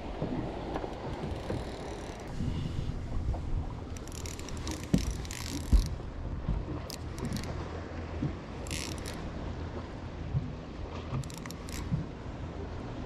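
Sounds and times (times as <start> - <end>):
wind on microphone: 0.0 - 7.6
water against boat hull: 0.0 - 13.0.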